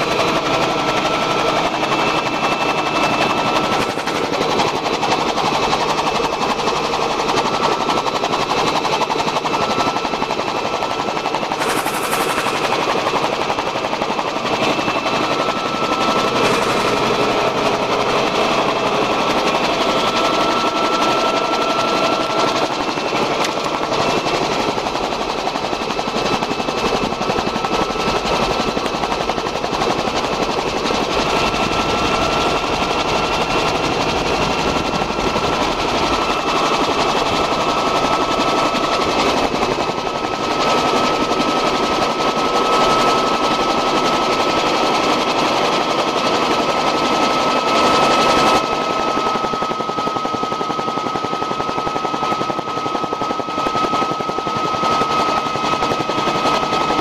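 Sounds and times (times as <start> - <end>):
steady high whine: 0.0 - 44.6
helicopter rotor beating: 0.0 - 57.0.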